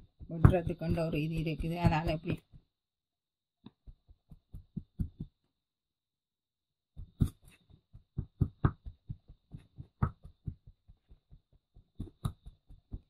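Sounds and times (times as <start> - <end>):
tin can chopping dough: 0.0 - 2.6, 3.7 - 5.4, 7.0 - 13.0.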